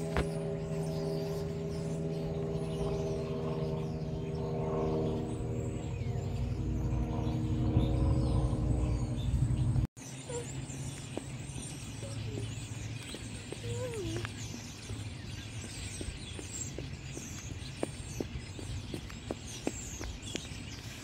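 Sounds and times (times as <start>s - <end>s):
low rumble: 0.0s - 9.9s
birds chirping: 0.0s - 21.0s
engine hum: 0.0s - 21.0s.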